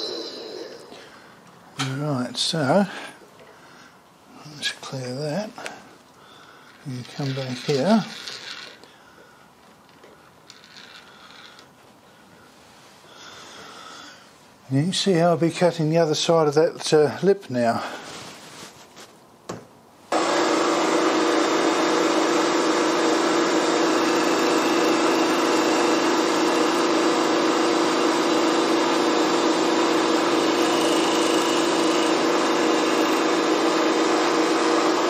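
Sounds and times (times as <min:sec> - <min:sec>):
milling machine cutting steel: 0:00.0 - 0:01.0, 0:20.2 - 0:35.0.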